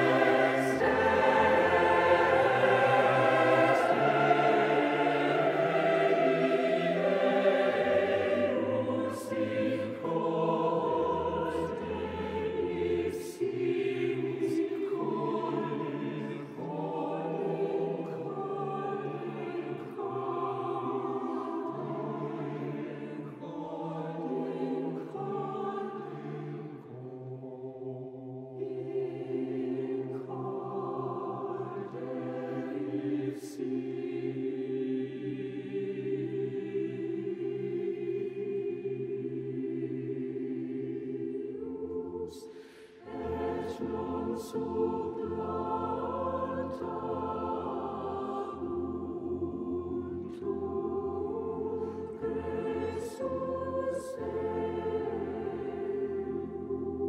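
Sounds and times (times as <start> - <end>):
men's voices singing: 0.0 - 28.0
full choir singing: 0.0 - 57.0
women's voices singing: 0.0 - 57.0.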